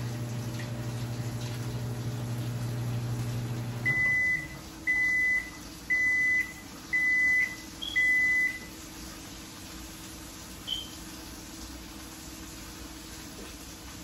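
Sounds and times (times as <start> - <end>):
microwave oven humming: 0.0 - 14.0
microwave long beeps: 1.8 - 8.8, 10.6 - 11.0.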